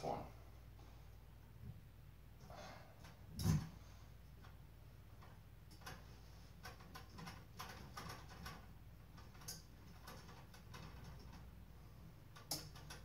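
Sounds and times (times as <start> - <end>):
faint clicks and taps on metal: 12.3 - 13.0.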